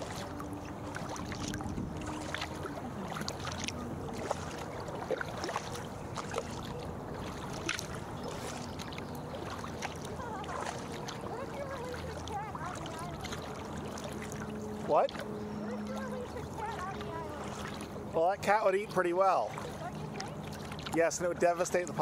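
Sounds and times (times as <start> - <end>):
paddle dipping into water: 0.0 - 22.0
small splashes and drips: 0.0 - 22.0.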